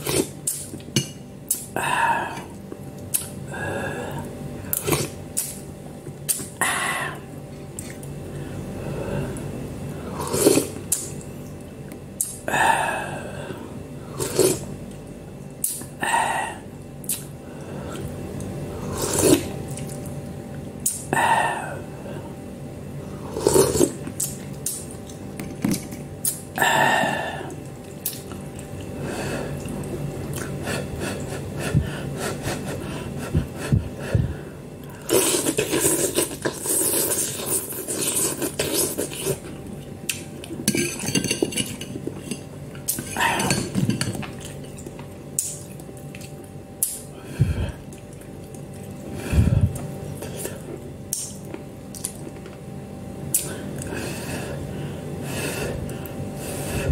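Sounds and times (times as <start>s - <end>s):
slurping noodles: 10.1s - 11.1s, 14.1s - 14.7s, 18.8s - 20.0s, 23.2s - 24.4s, 35.0s - 39.6s
cutlery clinking against bowl: 40.6s - 44.6s.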